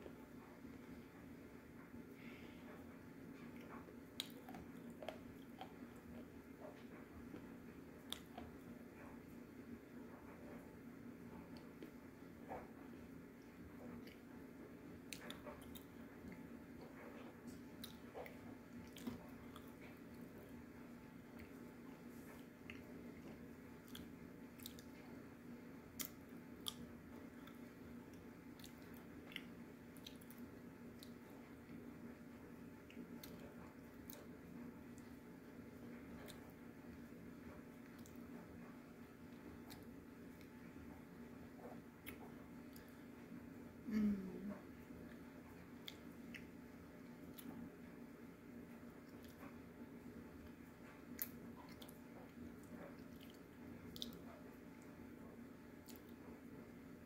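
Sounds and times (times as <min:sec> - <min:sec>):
low steady hum: 0:00.0 - 0:57.0
person chewing with crunches: 0:02.2 - 0:08.8, 0:15.0 - 0:25.2, 0:25.9 - 0:31.8, 0:48.9 - 0:49.7, 0:50.4 - 0:54.4, 0:55.8 - 0:56.2.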